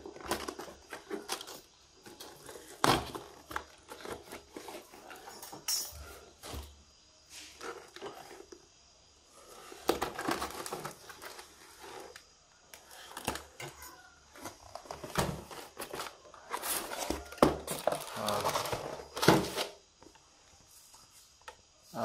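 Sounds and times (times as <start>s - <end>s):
cardboard box rustling and scraping: 0.0s - 5.3s, 7.3s - 8.6s, 9.4s - 12.3s, 13.5s - 19.8s.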